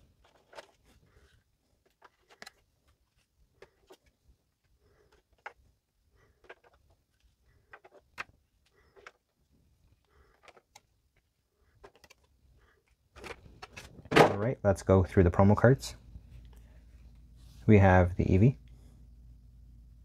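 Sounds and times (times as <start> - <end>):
cards clicking on plastic tray: 5.0 - 5.6, 6.4 - 6.9, 7.6 - 9.2, 10.3 - 10.9, 11.8 - 12.3.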